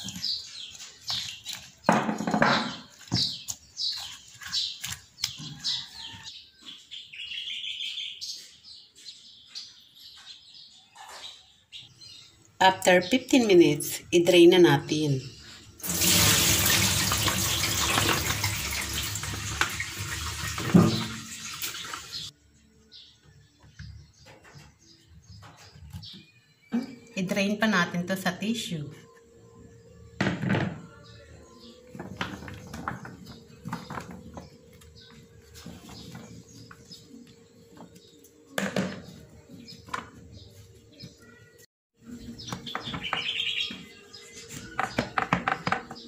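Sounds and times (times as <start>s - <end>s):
water splashing into colander: 15.8s - 22.3s.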